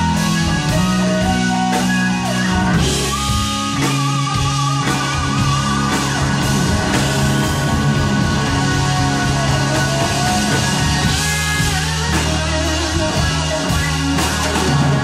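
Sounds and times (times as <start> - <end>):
blues-rock band playing: 0.0 - 15.0.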